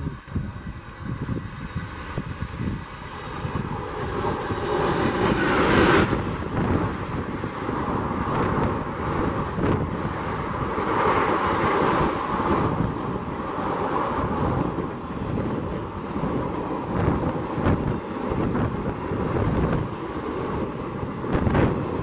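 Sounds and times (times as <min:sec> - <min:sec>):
train passing at full speed: 0:00.0 - 0:22.0
wheels rumbling over rails: 0:00.0 - 0:22.0
wind buffeting microphone: 0:00.0 - 0:22.0.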